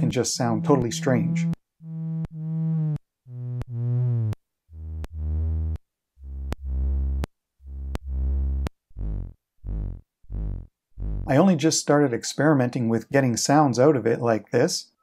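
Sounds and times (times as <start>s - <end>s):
short synth-like tones: 0.0s - 11.3s.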